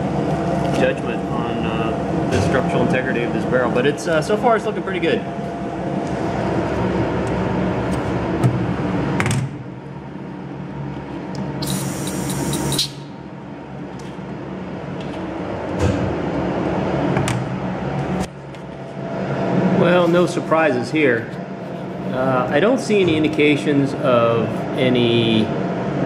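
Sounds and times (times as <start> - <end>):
steady shop hum: 0.0 - 26.0
hiss: 11.6 - 13.0.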